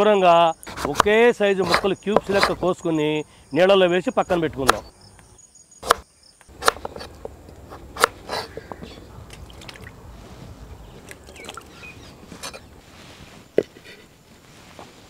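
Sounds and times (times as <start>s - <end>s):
food cubes splashing into water: 9.3s - 10.0s.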